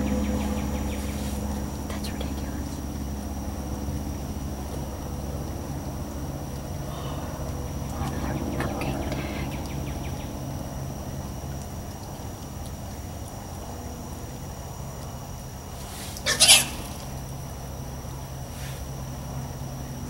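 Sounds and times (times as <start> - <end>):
hogs feeding: 0.0 - 20.0
hog squealing: 16.2 - 17.2.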